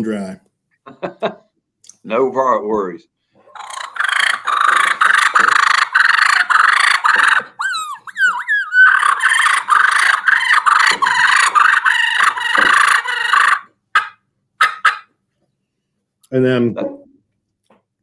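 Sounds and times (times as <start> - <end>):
turkey call raspy purrs: 3.5 - 15.1
turkey call swooping squeals: 3.5 - 15.1.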